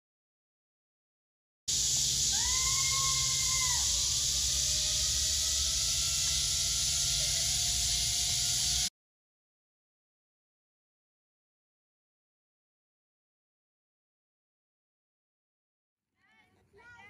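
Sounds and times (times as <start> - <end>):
faint rising whine: 1.7 - 8.9
steady high hiss: 1.7 - 8.9.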